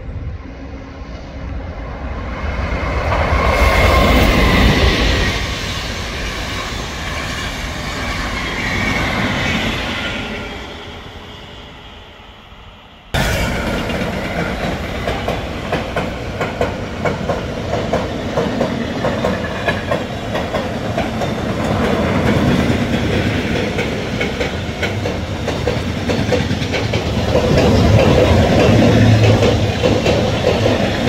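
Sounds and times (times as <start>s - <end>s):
train wheels clattering on rails: 13.2s - 31.0s.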